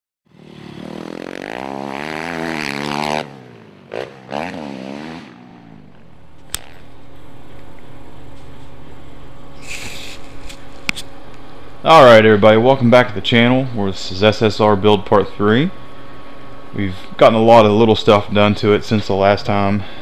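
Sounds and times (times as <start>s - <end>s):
motorcycle engine revving: 0.3s - 8.5s
steady low hum: 0.3s - 20.0s
sharp click: 6.4s - 6.8s.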